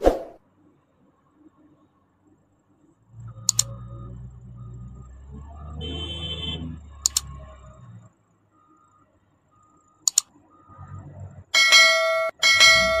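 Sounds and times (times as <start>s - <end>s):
low engine rumble: 0.6s - 9.8s
mouse double click: 3.5s - 3.7s, 7.0s - 7.3s, 10.0s - 10.3s
notification bell ding: 11.6s - 13.0s.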